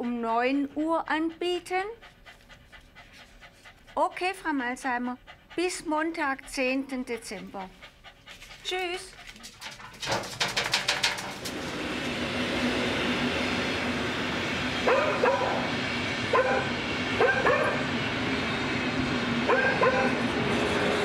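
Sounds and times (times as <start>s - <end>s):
rattle of clicks: 9.6s - 11.5s
dog barking: 14.9s - 15.7s, 16.3s - 17.9s, 19.5s - 20.2s.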